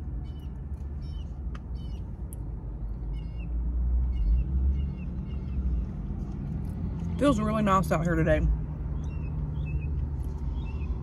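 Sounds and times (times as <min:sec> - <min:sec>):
traffic rumble: 0:00.0 - 0:11.0
small bird chirping: 0:00.2 - 0:02.2, 0:02.9 - 0:05.9, 0:08.9 - 0:11.0.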